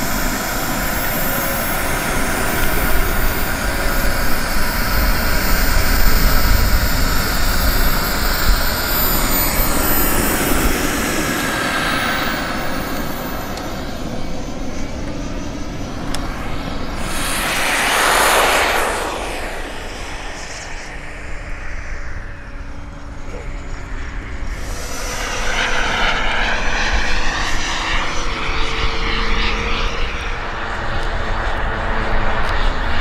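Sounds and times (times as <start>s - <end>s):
model airplane motor whine: 0.0s - 19.4s.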